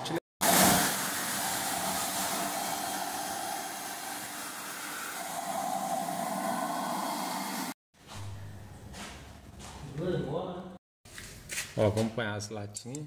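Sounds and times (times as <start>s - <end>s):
pressure washer spraying: 0.4s - 7.8s.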